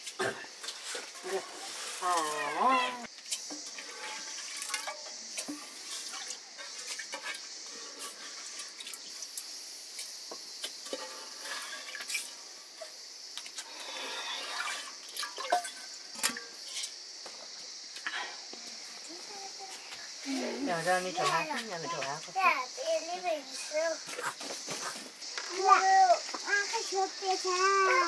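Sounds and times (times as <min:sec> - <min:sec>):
steady high hiss: 0:00.0 - 0:28.0
water splashing and dripping: 0:03.1 - 0:17.5.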